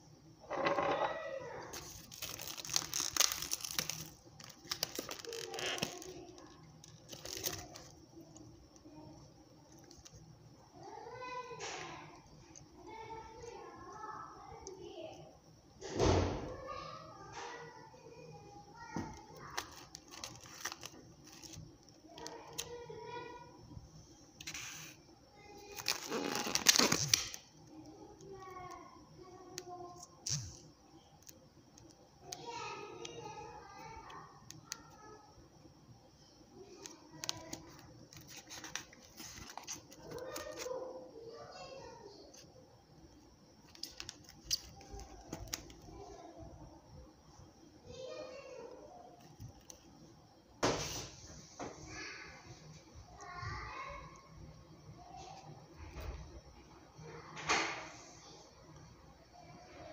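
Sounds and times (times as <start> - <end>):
plastic wrapping crinkling: 1.7 - 8.5, 19.0 - 22.8, 25.6 - 27.4, 36.7 - 40.8, 43.6 - 46.0.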